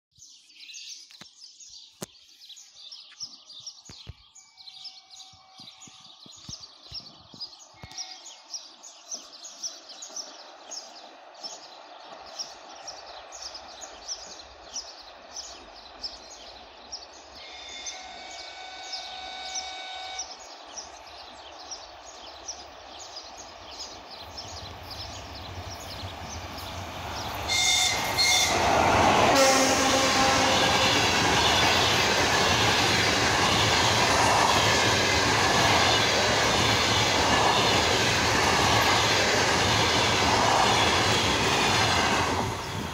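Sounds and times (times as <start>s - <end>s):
birds chirping: 0.2s - 42.9s
train rumbling past: 8.0s - 42.9s
train horn: 17.4s - 20.5s, 27.5s - 31.6s.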